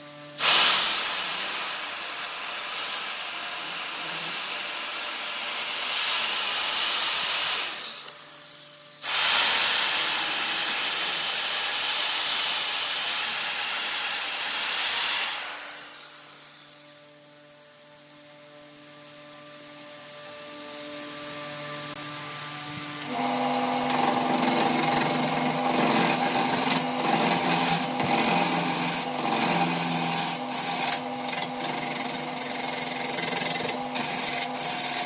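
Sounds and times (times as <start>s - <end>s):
chainsaw cutting log: 23.1s - 35.0s.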